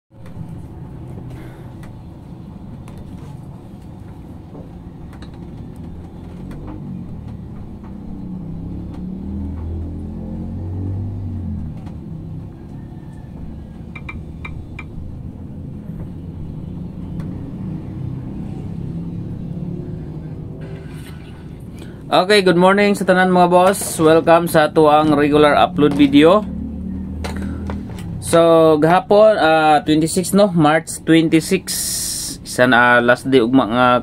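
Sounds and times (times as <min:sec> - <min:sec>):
vehicle engine rumble: 0:00.1 - 0:34.0.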